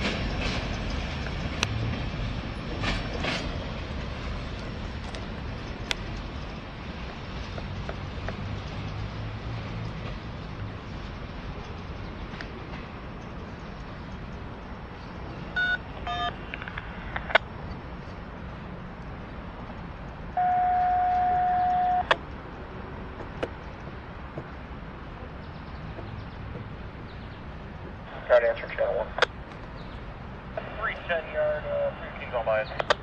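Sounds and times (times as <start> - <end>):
long steady beep: 15.6 - 16.4, 20.4 - 22.1
short electronic beeps: 20.4 - 22.1
steady low rumble: 21.2 - 32.8.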